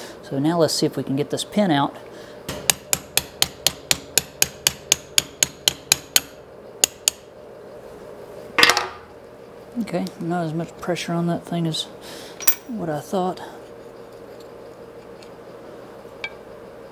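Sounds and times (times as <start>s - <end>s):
hammer tapping steel punch: 2.5s - 7.2s.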